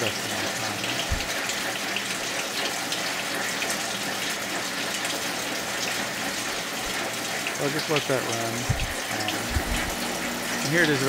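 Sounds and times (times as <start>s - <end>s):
coolant pouring and splashing: 0.0s - 11.0s
low hum: 9.2s - 10.7s.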